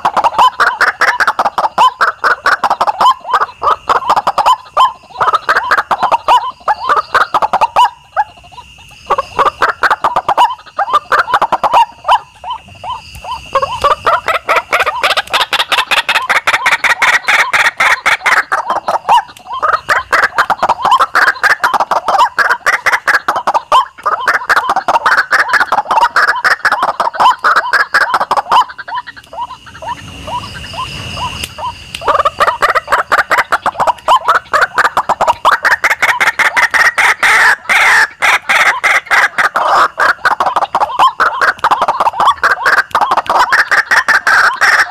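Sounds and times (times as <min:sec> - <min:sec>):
bird calls harsh rapid notes: 0:00.0 - 0:44.9.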